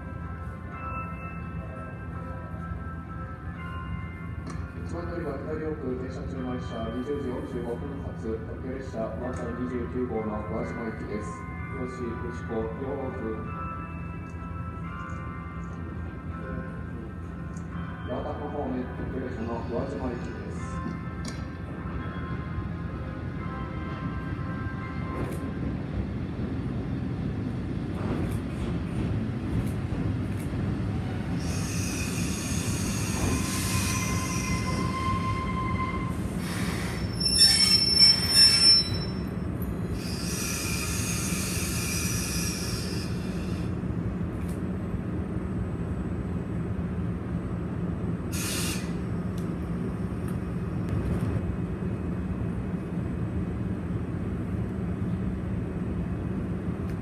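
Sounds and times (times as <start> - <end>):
train brake and wheel squeal: 31.4 - 43.7, 48.3 - 49.0.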